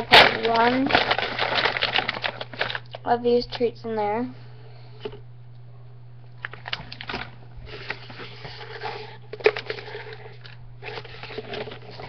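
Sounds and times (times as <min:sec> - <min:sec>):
paper and packaging rustling: 0:00.0 - 0:03.0, 0:06.4 - 0:12.0
steady low hum: 0:00.0 - 0:12.0.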